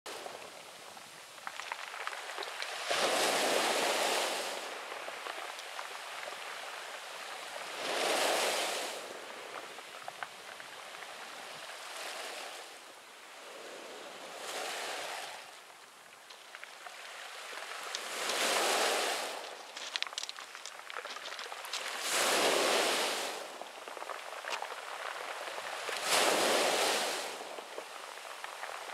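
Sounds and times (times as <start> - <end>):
waves breaking on pebble beach: 0.1 - 28.9
pebbles clicking: 1.4 - 2.8, 19.4 - 22.1.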